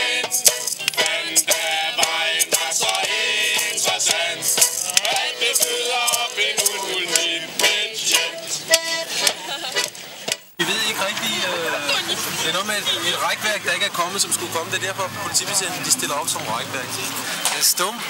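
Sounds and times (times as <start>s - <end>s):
shaken rattle beat: 0.0s - 10.5s
lively accordion music: 0.0s - 17.4s.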